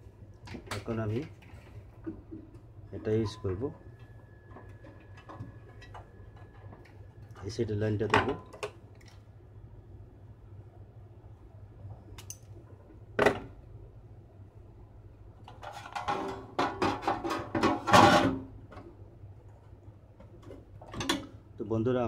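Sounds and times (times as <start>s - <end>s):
sheet metal clattering and knocking: 15.6s - 18.5s.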